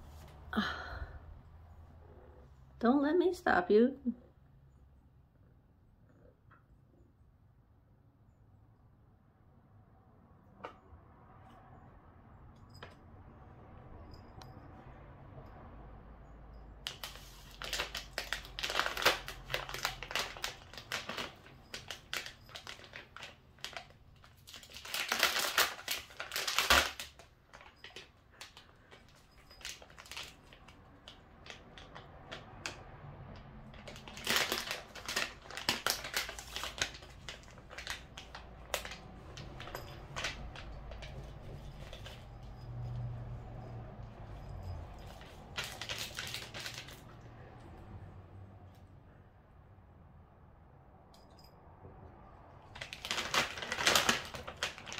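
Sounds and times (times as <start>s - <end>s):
plastic pouch crinkling: 16.9s - 32.8s, 33.7s - 42.2s, 45.0s - 47.2s, 52.7s - 54.9s.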